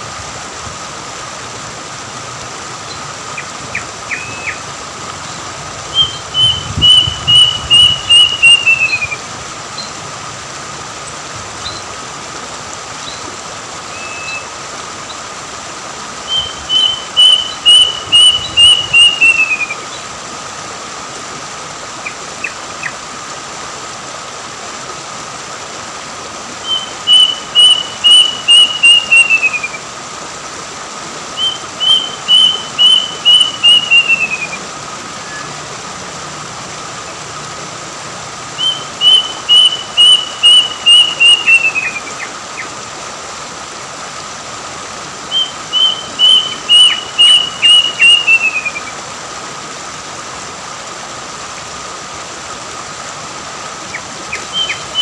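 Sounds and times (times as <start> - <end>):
stream rushing over rocks: 0.0 - 55.0
cuckoo whistled calls: 2.8 - 4.7, 5.8 - 9.9, 13.9 - 15.2, 16.2 - 20.0, 26.6 - 29.8, 31.3 - 35.7, 38.5 - 42.7, 45.2 - 48.9, 53.9 - 55.0.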